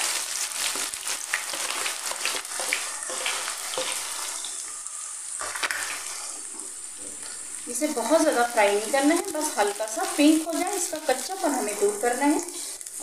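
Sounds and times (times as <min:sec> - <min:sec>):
onions sizzling in oil: 0:00.0 - 0:13.0
crackling pops: 0:09.0 - 0:13.0.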